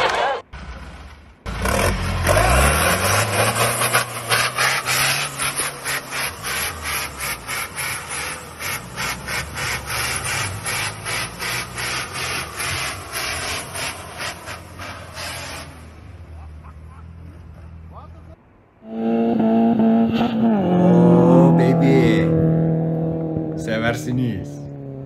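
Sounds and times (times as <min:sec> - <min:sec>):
diesel engine revving hard: 0:01.5 - 0:17.8, 0:19.2 - 0:25.0.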